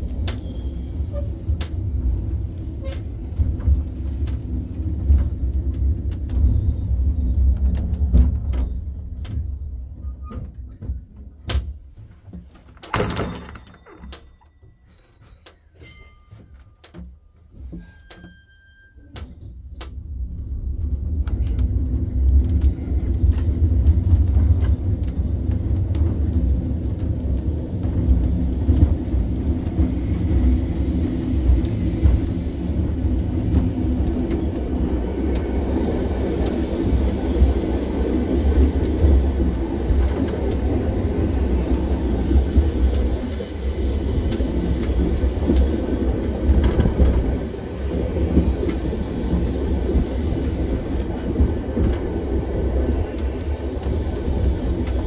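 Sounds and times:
tram wheels rumbling on rail: 0.0s - 55.0s
clicks and rattles: 12.5s - 17.1s.

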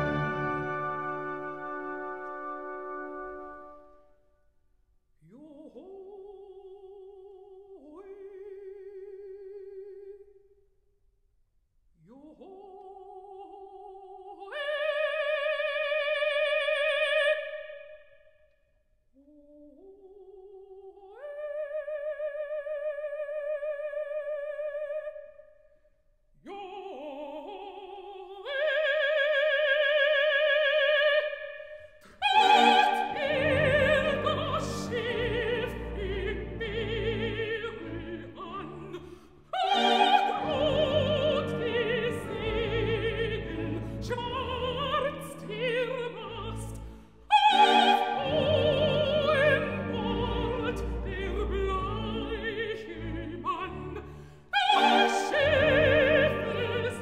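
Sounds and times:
full orchestra playing: 0.0s - 4.0s, 32.2s - 57.0s
operatic soprano singing: 0.0s - 4.0s, 5.2s - 10.3s, 12.0s - 18.0s, 19.2s - 25.5s, 26.4s - 57.0s.

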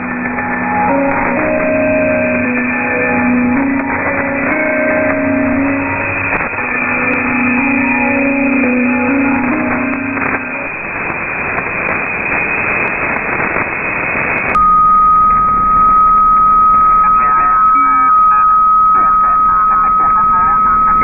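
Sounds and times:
radio static hiss: 0.0s - 14.6s, 17.0s - 21.0s
weak radio signal: 0.0s - 14.6s, 16.9s - 21.0s
faint warbling interference: 0.0s - 21.0s
steady high whistle: 14.5s - 21.0s.

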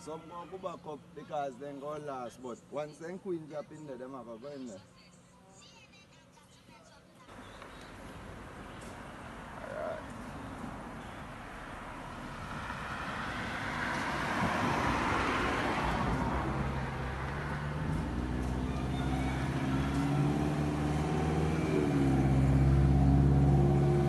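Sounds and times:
car passing with tyre noise: 7.3s - 24.0s
vehicle engine humming: 7.3s - 24.0s.

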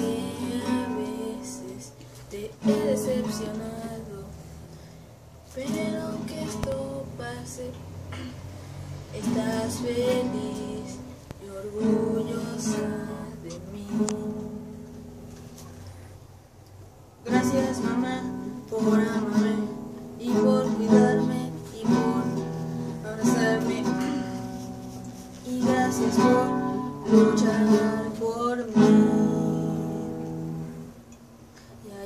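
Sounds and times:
acoustic guitar strumming: 0.0s - 4.4s, 5.5s - 16.0s, 17.2s - 32.0s
boy singing: 0.0s - 4.6s, 5.4s - 8.4s, 9.1s - 14.8s, 17.2s - 30.2s, 31.8s - 32.0s.

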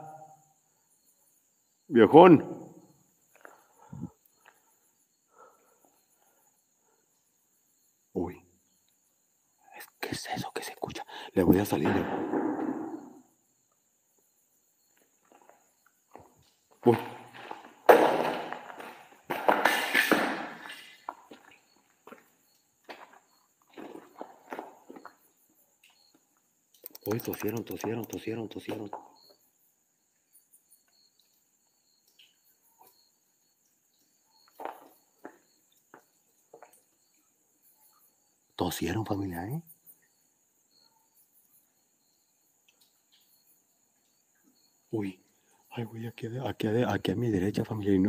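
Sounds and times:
crickets chirring: 0.0s - 48.0s
footsteps on gritty concrete: 15.0s - 25.3s, 34.5s - 36.7s.

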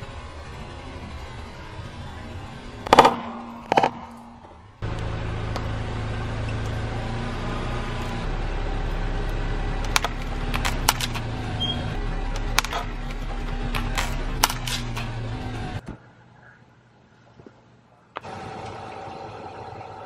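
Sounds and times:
car engine humming: 0.0s - 15.9s, 18.2s - 20.0s
sharp crack: 2.7s - 5.8s, 9.2s - 15.2s
sharp clicks: 9.8s - 11.3s, 12.4s - 15.2s.

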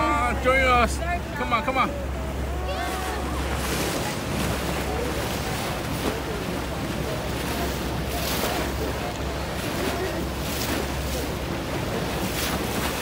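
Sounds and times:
boat engine humming: 0.0s - 13.0s
water splashing along hull: 0.0s - 13.0s.

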